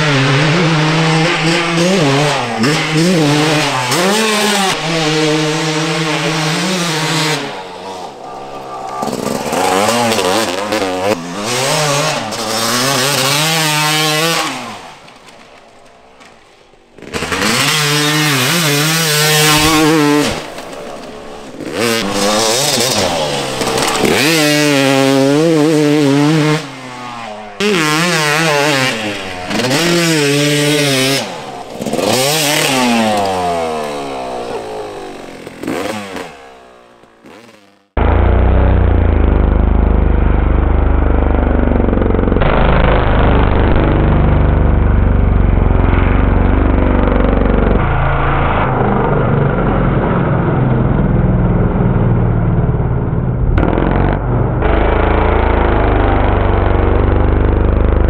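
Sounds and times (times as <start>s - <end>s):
motocross engine revving: 0.0s - 58.0s.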